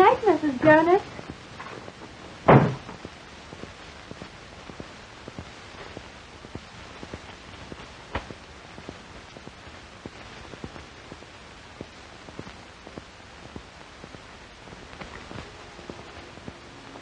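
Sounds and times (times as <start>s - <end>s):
old film soundtrack hiss and crackle: 0.0s - 17.0s
door shutting thud: 2.5s - 3.0s.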